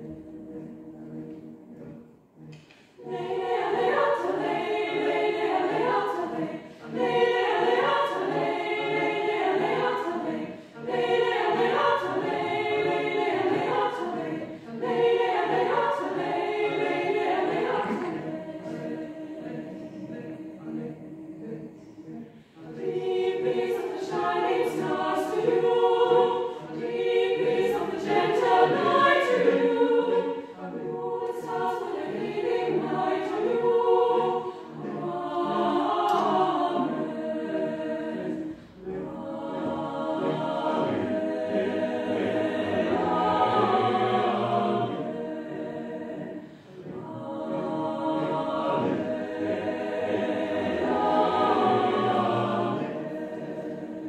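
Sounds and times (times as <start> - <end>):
choir singing a cappella: 0.0 - 54.0.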